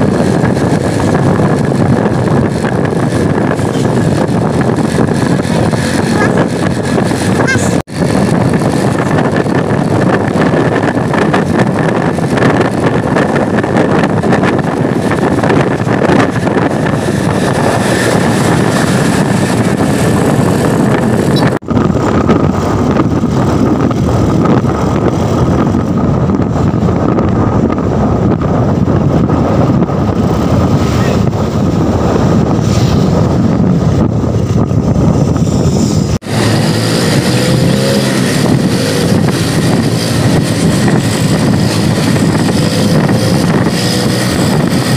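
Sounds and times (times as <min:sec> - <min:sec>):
road and engine noise: 0:00.0 - 0:44.9
wind buffeting the microphone: 0:00.0 - 0:44.9.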